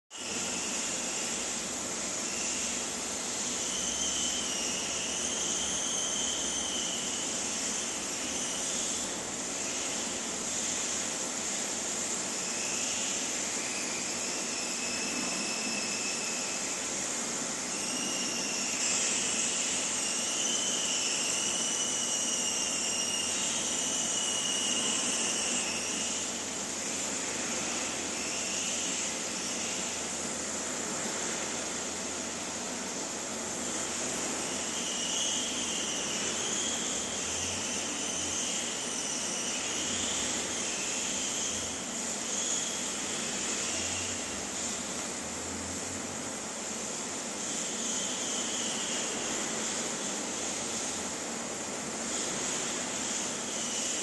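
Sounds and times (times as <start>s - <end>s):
faint wavering whistle: 2.2s - 10.1s, 12.4s - 17.0s, 17.6s - 26.4s, 34.0s - 44.2s, 47.4s - 49.8s, 52.6s - 54.0s.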